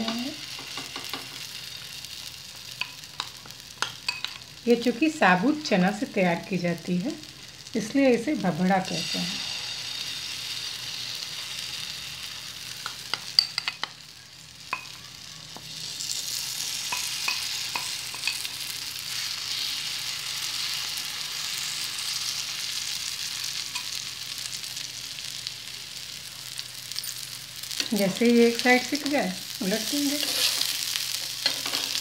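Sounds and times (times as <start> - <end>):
batter sizzling in oil: 0.0 - 32.0
metal spoon clicking on pan: 2.8 - 4.4, 12.8 - 14.0.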